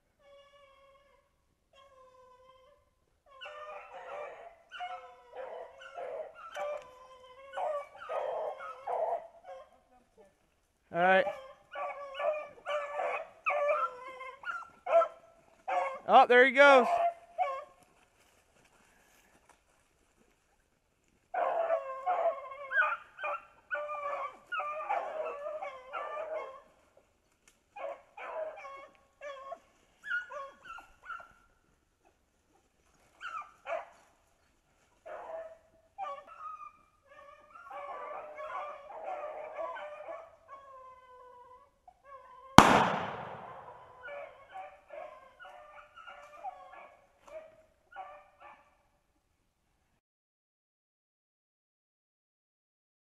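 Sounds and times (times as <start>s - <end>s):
dogs baying: 3.4s - 9.7s, 11.2s - 16.1s, 21.3s - 26.8s, 37.2s - 41.6s, 42.6s - 48.6s
loud shotgun shot: 42.6s - 43.8s.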